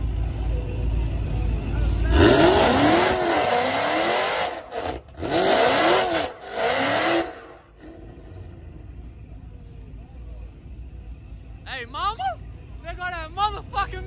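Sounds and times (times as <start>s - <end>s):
car engine revving hard: 2.1s - 8.2s.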